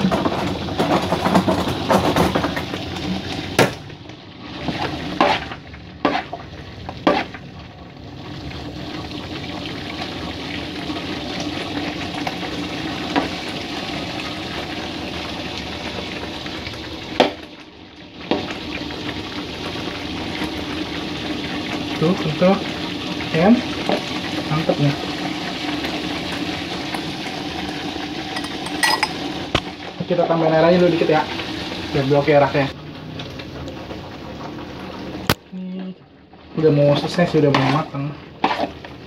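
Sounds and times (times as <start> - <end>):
sauce simmering in a wok: 0.0 - 39.0
metal spatula scraping pan: 4.6 - 6.4, 7.0 - 7.4, 37.4 - 39.0.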